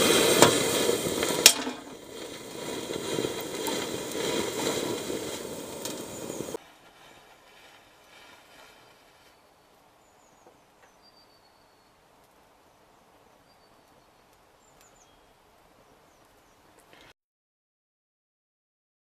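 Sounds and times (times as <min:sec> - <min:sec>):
burning matchsticks hissing: 0:00.0 - 0:06.6
soft crackles: 0:00.0 - 0:11.0
faint high bird chirps: 0:08.8 - 0:12.0, 0:13.2 - 0:16.8.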